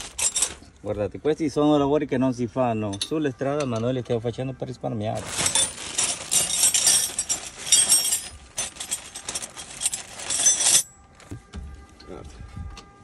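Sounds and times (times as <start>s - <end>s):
metal tools clinking: 0.0s - 0.6s, 2.8s - 3.9s, 5.2s - 11.0s.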